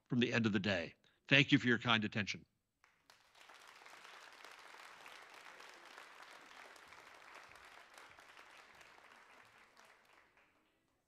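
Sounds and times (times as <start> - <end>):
faint audience applause: 2.8 - 11.0.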